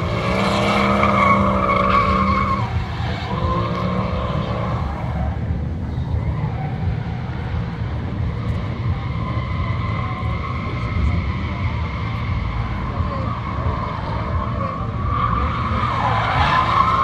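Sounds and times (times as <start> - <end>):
car engine rumble: 0.0 - 17.0
tyres squealing: 0.3 - 5.2.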